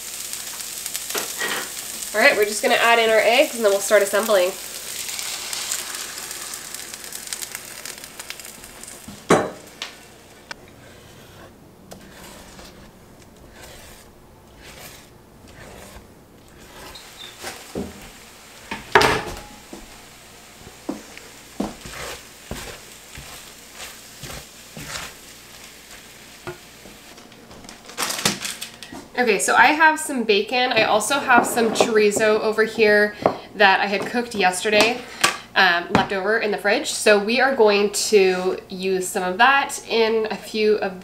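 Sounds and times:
eggs sizzling in a hot pan: 0.0 - 27.2
utensil knocking and scraping pan: 10.8 - 19.6, 30.8 - 33.4.

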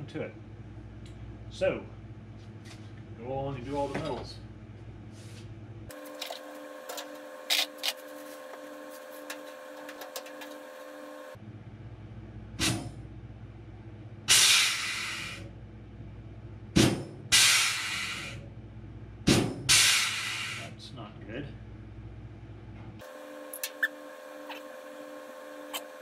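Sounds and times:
air hissing: 14.3 - 15.4, 17.3 - 18.4, 19.7 - 20.7.

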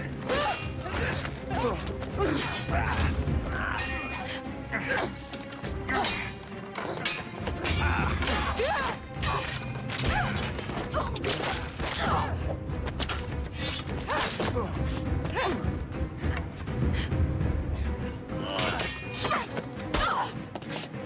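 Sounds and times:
grunts and shouts: 0.0 - 12.7, 18.3 - 20.7
blades clashing: 5.9 - 12.4.

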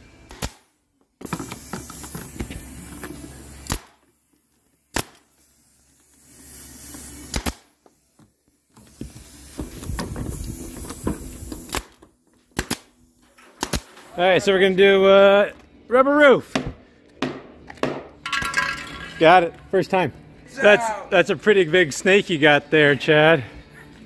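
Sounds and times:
air stapler firing: 0.2 - 2.1, 3.6 - 4.0, 4.9 - 5.3, 7.3 - 7.8, 10.8 - 12.9, 13.5 - 14.0
air hissing: 0.6 - 4.2, 4.9 - 12.0.

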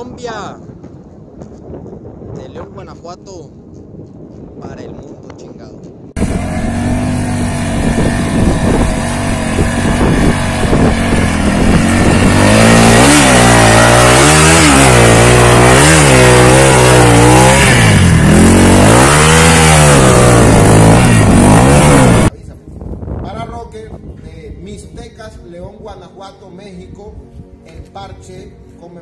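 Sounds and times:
motorcycle engine revving: 6.2 - 22.3.

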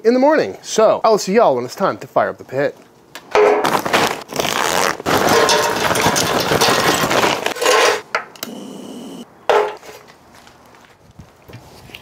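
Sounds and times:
charcoal clattering into metal: 5.1 - 8.1.

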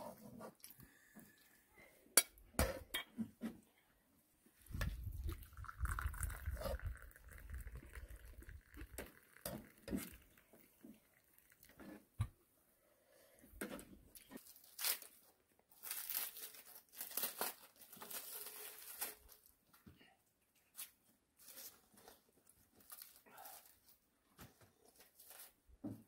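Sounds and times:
tea pouring into a cup: 4.8 - 12.2.

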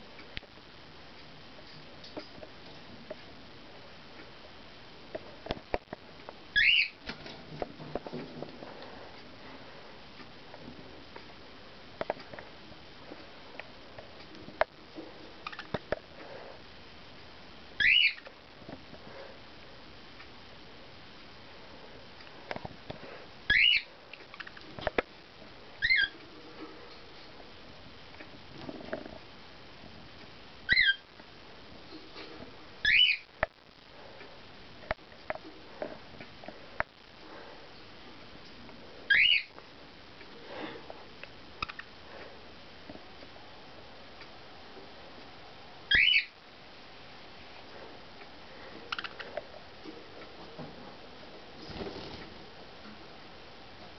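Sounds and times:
budgie chirp: 6.6 - 7.0, 17.8 - 18.2, 30.7 - 31.0, 32.8 - 33.3, 39.1 - 39.5, 45.9 - 46.4.

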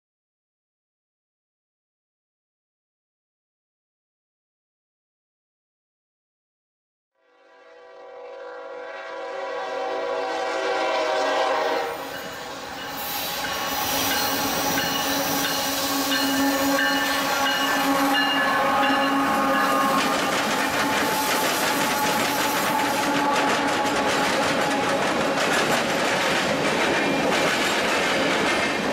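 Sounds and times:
locomotive air horn: 7.2 - 13.4, 15.2 - 25.2
wheels clattering over rail joints: 14.2 - 28.9.

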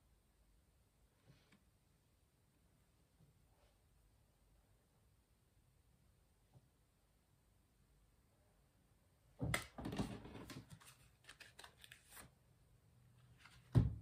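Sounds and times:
cards shuffling and flicking: 9.5 - 12.3, 13.3 - 13.8.

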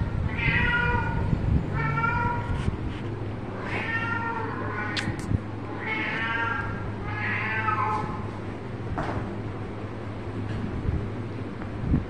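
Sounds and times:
kittens meowing: 0.3 - 2.6, 3.5 - 8.3.

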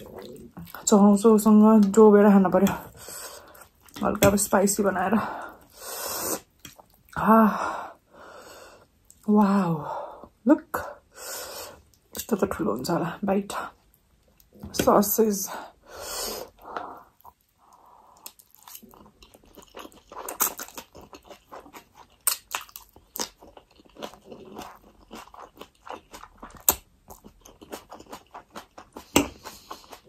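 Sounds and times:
chewing: 0.0 - 1.0, 2.7 - 4.1, 6.4 - 7.2, 16.6 - 30.0.

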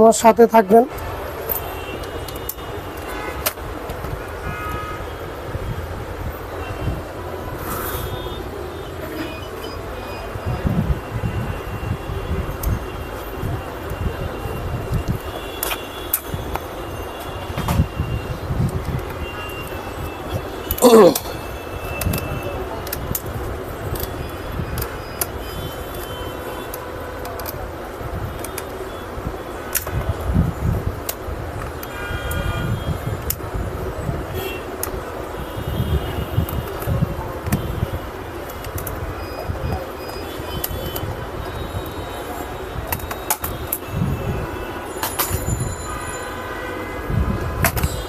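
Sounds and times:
road traffic rumble: 0.0 - 48.0
tools clicking on plastic parts: 20.7 - 28.8, 34.8 - 35.0, 38.4 - 39.0, 42.8 - 43.8.

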